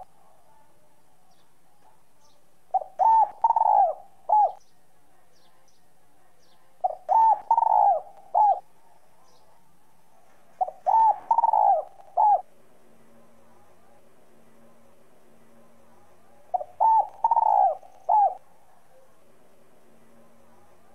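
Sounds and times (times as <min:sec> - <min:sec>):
dove cooing: 0:02.7 - 0:04.6, 0:06.8 - 0:08.8, 0:10.6 - 0:12.5, 0:16.5 - 0:19.0.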